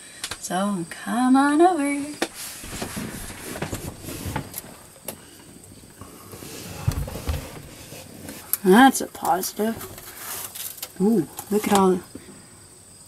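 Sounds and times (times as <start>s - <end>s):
refrigerator door thumps: 6.8s - 7.6s.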